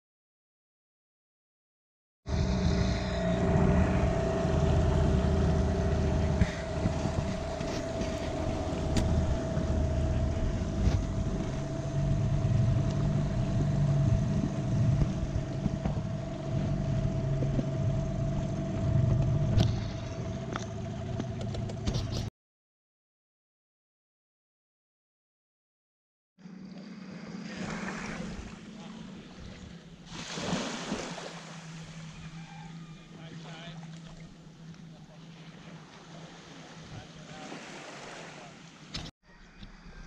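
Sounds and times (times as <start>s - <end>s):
outboard motor running: 2.3s - 22.3s, 26.4s - 40.0s.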